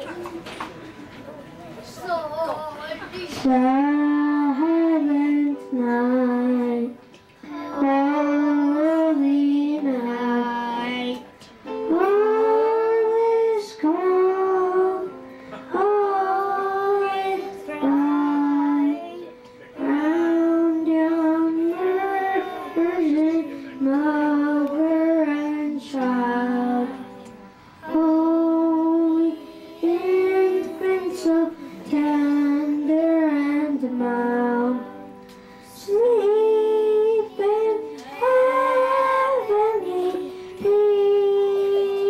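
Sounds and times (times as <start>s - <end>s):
children singing: 15.7s - 35.0s, 35.8s - 42.0s.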